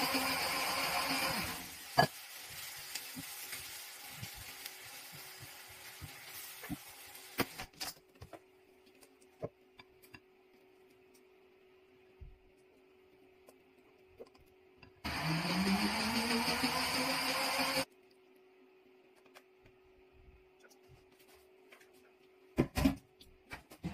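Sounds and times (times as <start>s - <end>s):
fish sizzling in sauce: 1.5s - 7.7s.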